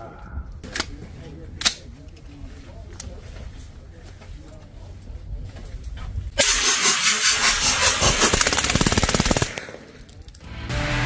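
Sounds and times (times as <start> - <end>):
rapid gunshots: 6.4 - 9.9.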